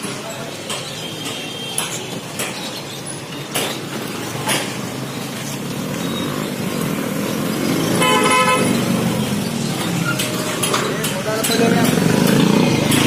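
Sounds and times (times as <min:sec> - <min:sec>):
sharp knocks: 0:00.0 - 0:05.1
motorcycles and scooters passing: 0:03.8 - 0:13.0
vehicle horn tooting: 0:08.0 - 0:08.8.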